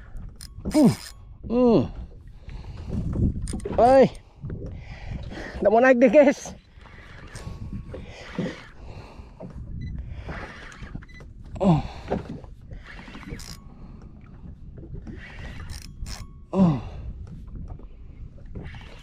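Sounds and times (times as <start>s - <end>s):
fishing reel cranking: 0.1s - 1.2s, 6.4s - 8.8s, 10.3s - 11.2s, 12.8s - 13.7s, 15.1s - 16.3s.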